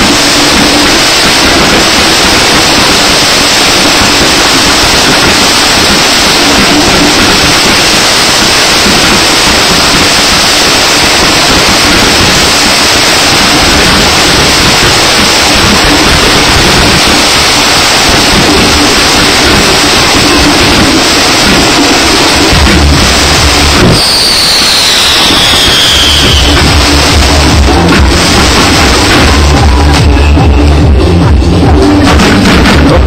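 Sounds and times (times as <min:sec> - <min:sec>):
firework fountains hissing: 0:00.0 - 0:33.0.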